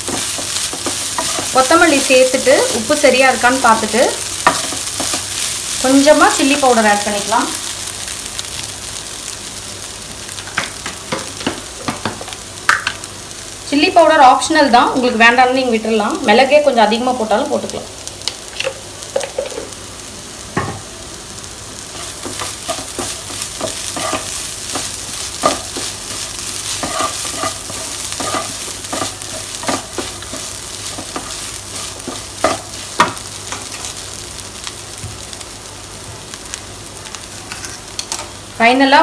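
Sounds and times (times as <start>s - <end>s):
food sizzling: 0.0s - 39.0s
spatula scraping frying pan: 21.9s - 33.1s.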